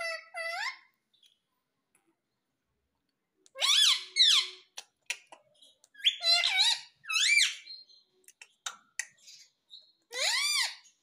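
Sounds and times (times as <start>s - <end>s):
parakeet high-pitched calls: 0.0s - 1.0s, 3.6s - 4.8s, 6.0s - 7.9s, 9.2s - 11.0s.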